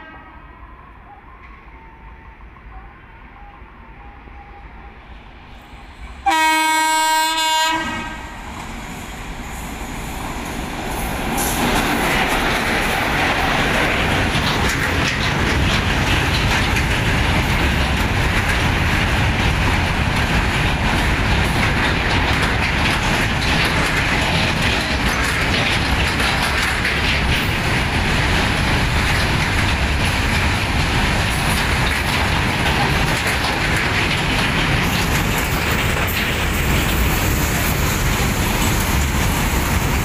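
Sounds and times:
train horn blast: 0.0 - 0.6, 6.2 - 8.4
freight train passing: 0.0 - 40.0
wheels clicking over rail joints: 10.3 - 40.0.

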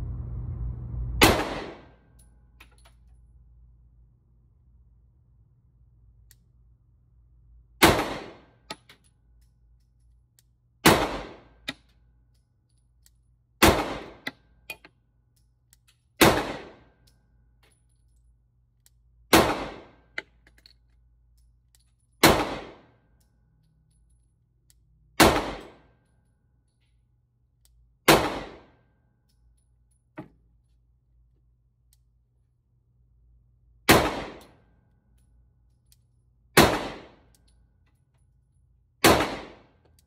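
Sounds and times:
pistol shots indoors: 1.2 - 3.2, 7.6 - 32.6, 33.6 - 38.3, 38.9 - 40.0.

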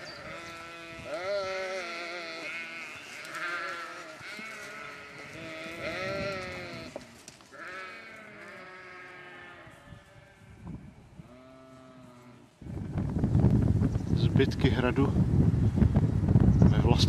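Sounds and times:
sheep bleating: 0.0 - 10.6.

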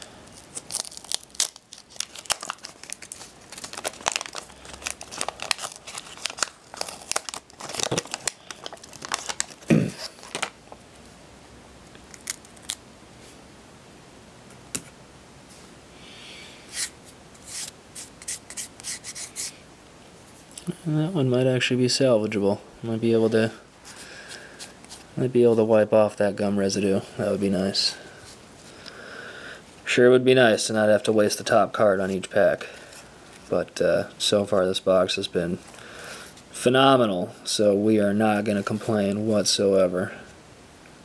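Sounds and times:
paper wrapper tearing and crinkling: 0.3 - 10.6, 12.0 - 12.8.

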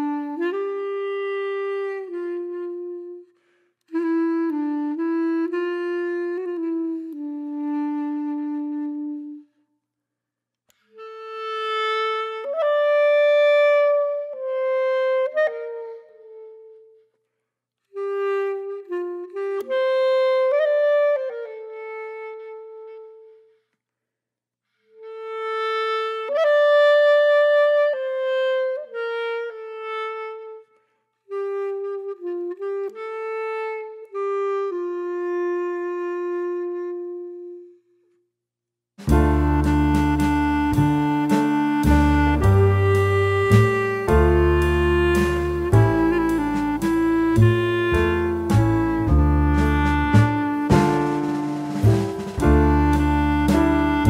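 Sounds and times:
solo woodwind melody: 0.0 - 9.6, 10.7 - 17.2, 17.8 - 23.7, 24.8 - 38.2, 39.0 - 54.0.

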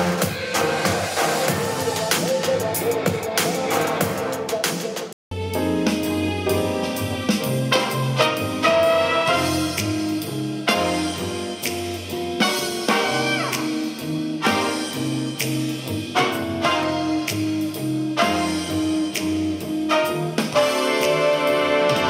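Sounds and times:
instrumental music through speaker: 0.0 - 22.0.

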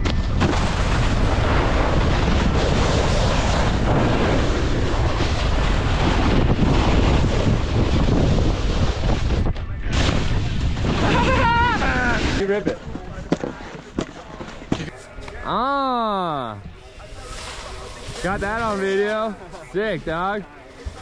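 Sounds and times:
wind buffeting microphone: 0.0 - 13.6.

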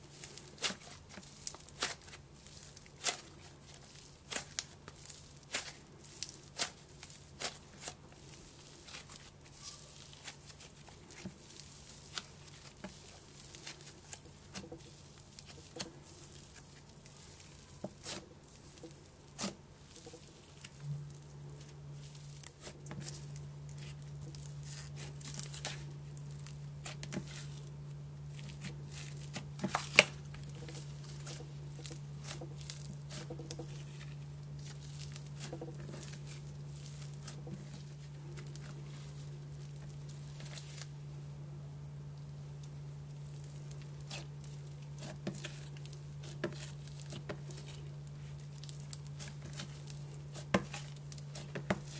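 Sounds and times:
slime crackling and popping: 0.1 - 40.9, 42.1 - 51.9
low hum: 19.9 - 22.3.

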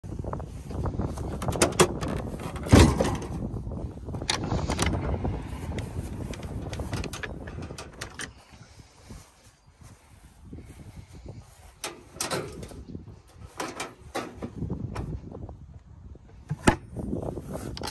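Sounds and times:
metal handles clicking and knocking: 1.2 - 3.4, 6.2 - 8.4, 11.8 - 14.6
tailgate thudding open: 1.4 - 3.5.

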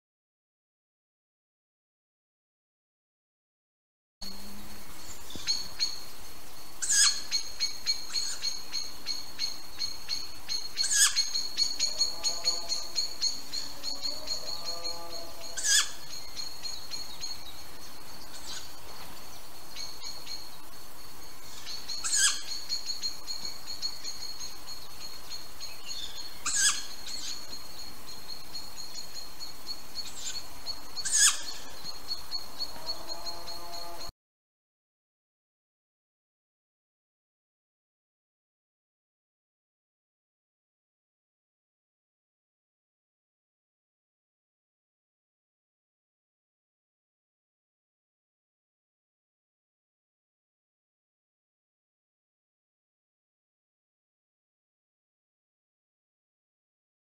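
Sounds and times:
lower bird calls: 4.2 - 34.1
owl chick begging calls: 6.8 - 9.5, 10.1 - 14.7, 15.4 - 17.0, 21.5 - 24.2, 26.0 - 27.5, 31.0 - 32.0.

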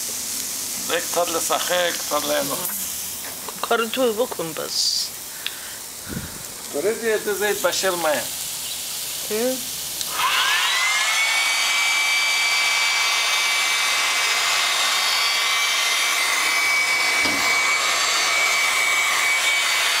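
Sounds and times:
rushing hiss: 0.0 - 20.0
small motor whining: 10.1 - 20.0.

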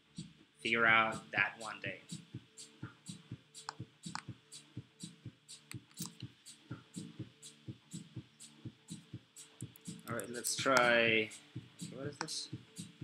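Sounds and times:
soft pulsing beat: 0.0 - 13.0
light hi-hat ticks: 0.2 - 13.0.

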